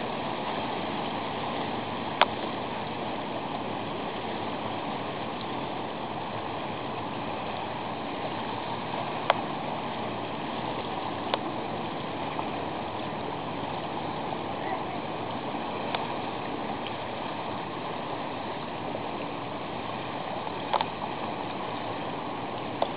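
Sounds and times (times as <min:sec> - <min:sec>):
sea water washing against breakwater: 0:00.0 - 0:22.9.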